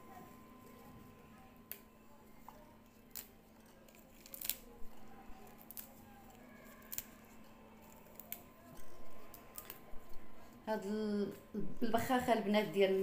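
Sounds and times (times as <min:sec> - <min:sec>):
faint steady hum: 0:00.0 - 0:13.0
mint stems snapping: 0:03.9 - 0:04.7, 0:06.9 - 0:07.1.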